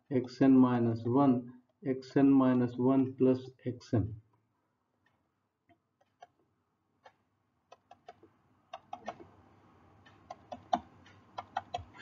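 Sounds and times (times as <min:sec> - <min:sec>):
stylus tapping on tablet: 0:10.1 - 0:12.0.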